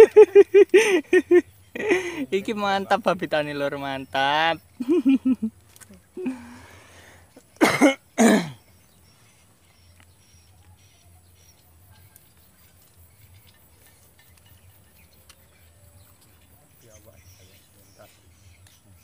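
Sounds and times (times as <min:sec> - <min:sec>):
man coughing: 0:07.6 - 0:08.6.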